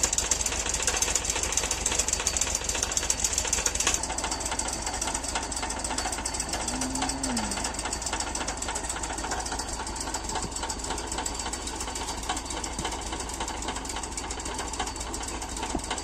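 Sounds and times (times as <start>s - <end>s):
forage chopper engine running: 0.0s - 16.0s.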